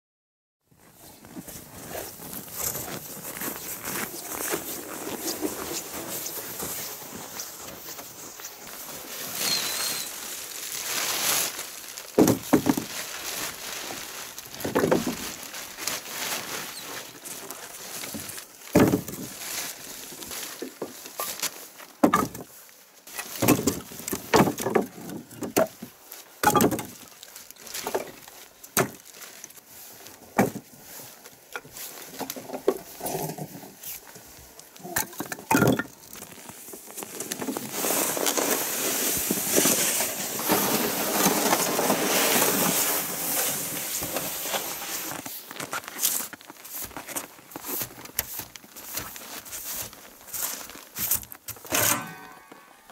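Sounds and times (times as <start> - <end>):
sled dragging over snow: 0.8 - 21.8, 36.0 - 52.9
footsteps in snow: 0.8 - 24.1, 36.0 - 52.9.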